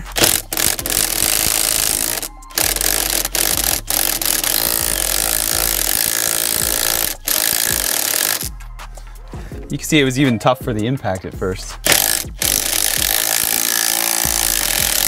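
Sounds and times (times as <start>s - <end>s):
impact wrench hammering: 0.0s - 8.5s, 11.8s - 15.0s.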